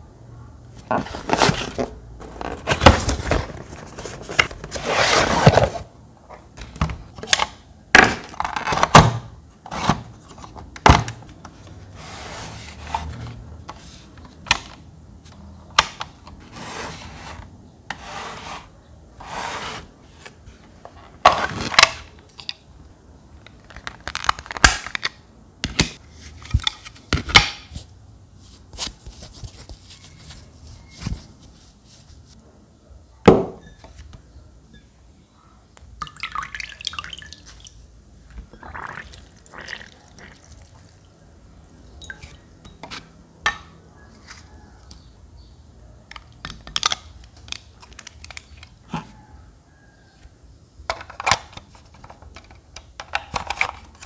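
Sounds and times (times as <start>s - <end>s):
cardboard box being opened: 0.9s - 5.9s
scrapes and rustles: 28.4s - 32.4s.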